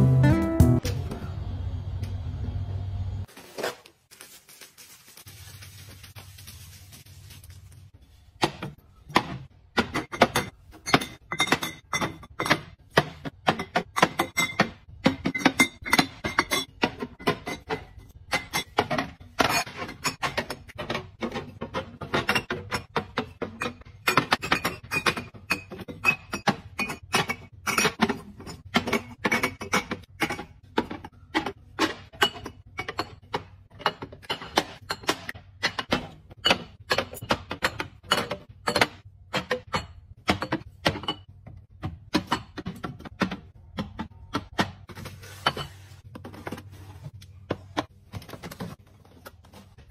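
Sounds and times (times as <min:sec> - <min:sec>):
glass bottles clinking: 0:09.8 - 0:12.8, 0:13.4 - 0:41.3.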